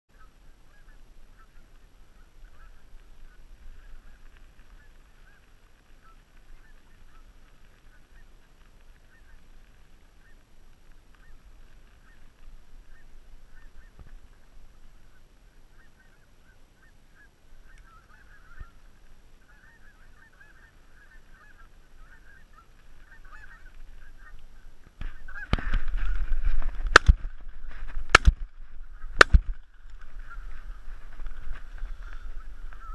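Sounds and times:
geese honking: 0.1 - 27.1, 28.1 - 32.9
shotgun shots: 26.9 - 27.2.

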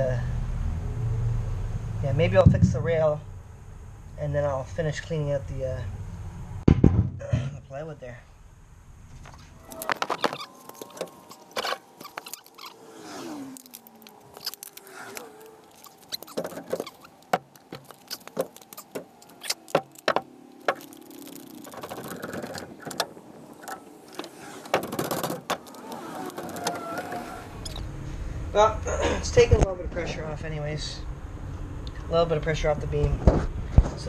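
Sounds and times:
jack squeaking: 9.2 - 27.9.

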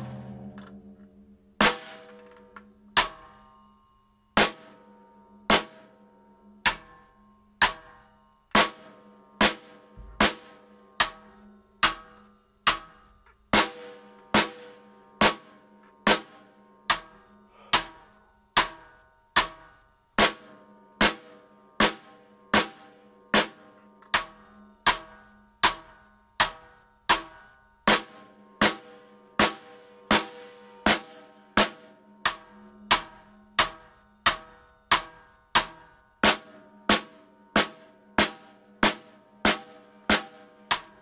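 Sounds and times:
drum hits: 0.0 - 0.8, 9.4 - 11.2, 35.6 - 41.0.

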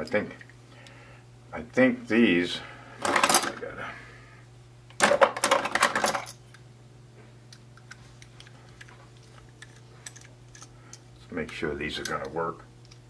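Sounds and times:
small metal parts clinking: 5.0 - 6.4.

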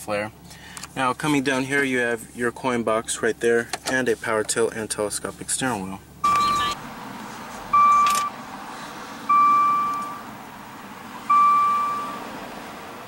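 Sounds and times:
dashboard warning chime: 6.2 - 6.8, 7.7 - 8.4, 9.3 - 10.3, 11.3 - 12.3.

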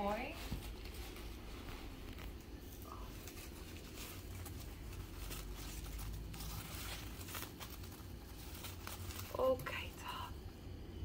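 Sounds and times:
wrapping paper rustling: 0.0 - 10.3.

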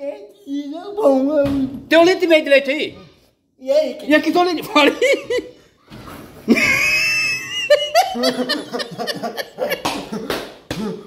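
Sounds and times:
man laughing hard: 6.5 - 11.0.

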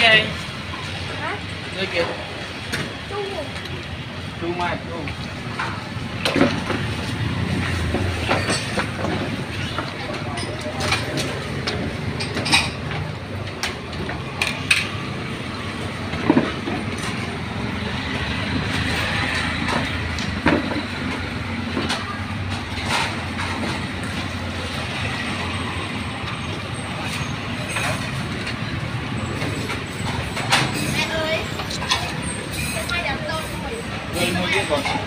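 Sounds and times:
street traffic: 0.0 - 35.0
auto-rickshaw passing: 5.4 - 34.8.

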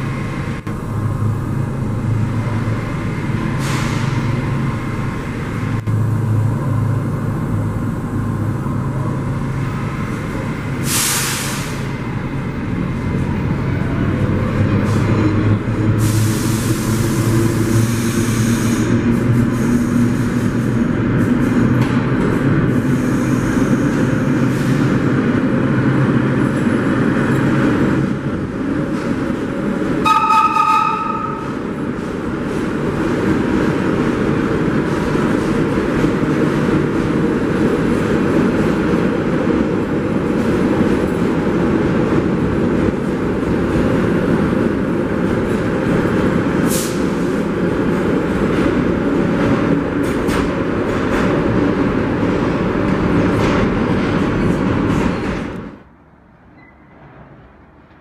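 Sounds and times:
train wheels rumbling on rail: 0.0 - 58.0
air hiss: 10.8 - 11.9, 16.0 - 18.9
train horn blast: 30.0 - 31.6.

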